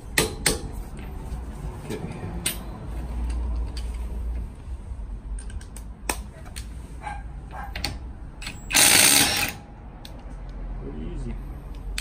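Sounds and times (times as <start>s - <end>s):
hand tools clicking and knocking: 1.8s - 4.4s.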